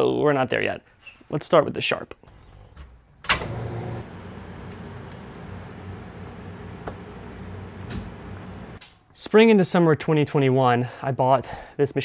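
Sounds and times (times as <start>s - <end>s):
machine electrics humming: 3.3s - 8.8s.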